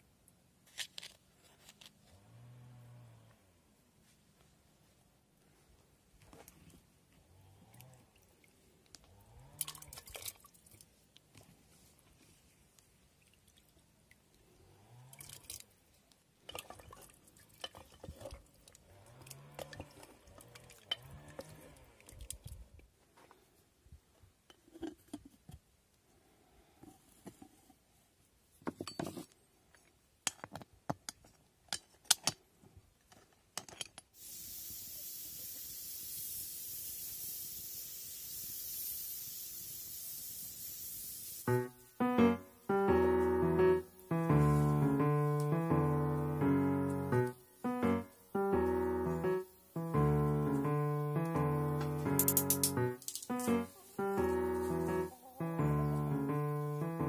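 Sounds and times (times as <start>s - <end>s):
steady hiss: 34.2s - 57.0s.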